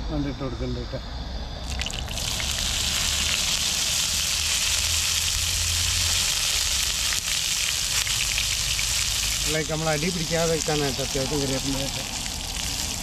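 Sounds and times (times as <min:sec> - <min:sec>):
leaves sizzling in hot oil: 0:01.6 - 0:13.0.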